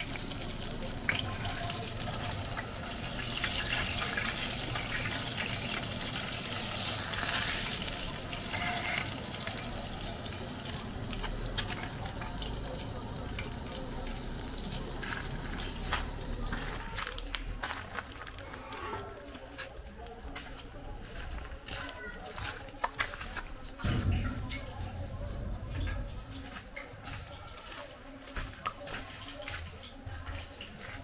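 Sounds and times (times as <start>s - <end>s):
food sizzling in oil: 0.0s - 17.4s.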